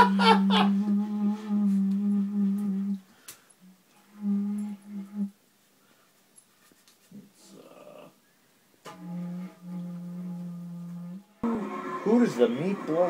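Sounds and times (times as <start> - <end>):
low held note with overtones: 0.7 - 3.0, 8.9 - 12.2.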